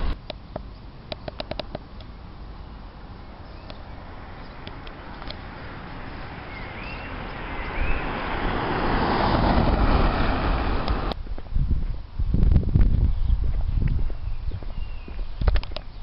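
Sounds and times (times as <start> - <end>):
car passing on road: 2.1 - 11.2
bird chirping: 2.6 - 8.4, 13.1 - 16.0.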